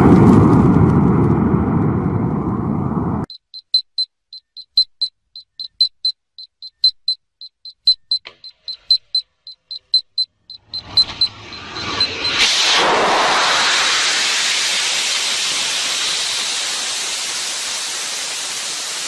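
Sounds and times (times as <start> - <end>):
rapid high electronic beeping: 3.3 - 12.7
rocket motor launch blast: 10.9 - 19.0.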